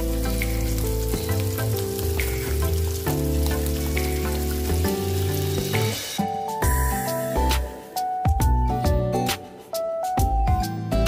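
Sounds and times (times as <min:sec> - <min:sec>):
hot oil sizzling and crackling: 0:00.0 - 0:08.2
background music: 0:00.0 - 0:11.0.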